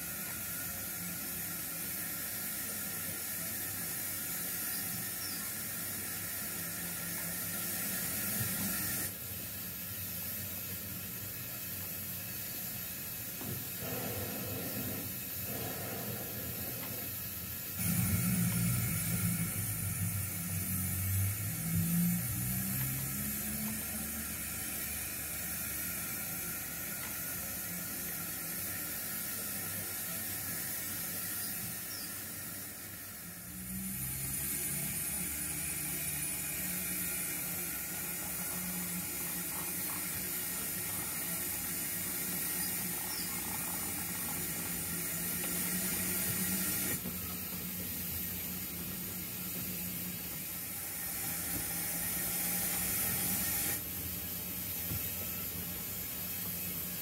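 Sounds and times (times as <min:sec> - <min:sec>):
model trains hissing: 0:00.0 - 0:57.0
low hum: 0:17.8 - 0:24.2.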